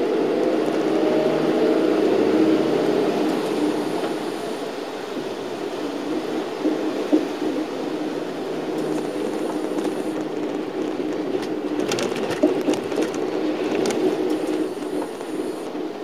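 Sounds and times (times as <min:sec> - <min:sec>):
bus engine and road noise: 0:00.0 - 0:16.0
tyres on wet road: 0:00.0 - 0:16.0.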